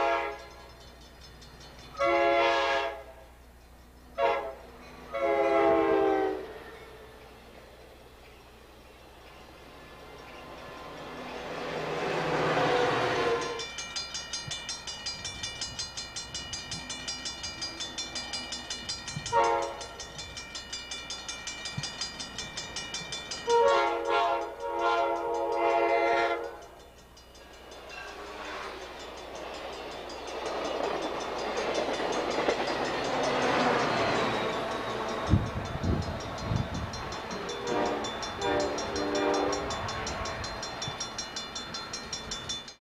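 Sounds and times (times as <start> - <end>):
locomotive air horn: 0.0 - 0.7, 2.0 - 3.2, 4.2 - 6.9, 12.0 - 13.7, 19.3 - 20.0, 23.4 - 26.8, 28.1 - 28.9, 37.6 - 39.9
crossing bell ringing: 0.0 - 42.8
passing train rumble: 0.0 - 42.8.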